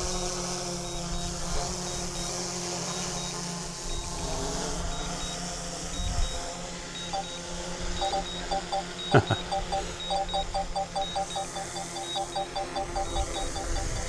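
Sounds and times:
short high beeps: 0.8 - 1.3, 1.9 - 4.2, 4.9 - 5.4, 6.0 - 6.4, 7.0 - 7.4, 8.0 - 14.0.

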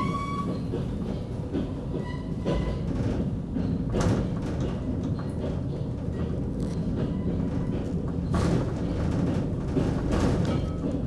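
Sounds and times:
wheel squeal: 0.0 - 0.8
suspension railway rumbling: 0.0 - 11.0.

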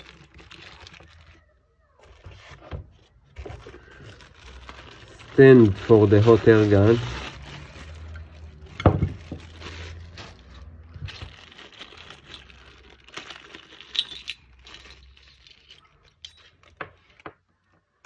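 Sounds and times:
plastic bags crinkling: 0.0 - 17.4
metal nozzles clinking: 13.8 - 16.6.

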